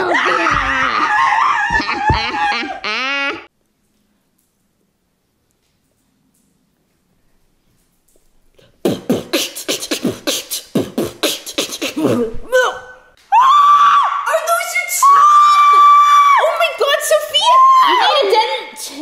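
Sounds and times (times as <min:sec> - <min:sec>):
person beatboxing: 0:08.7 - 0:12.4
loud high scream: 0:13.3 - 0:16.6, 0:17.4 - 0:18.3.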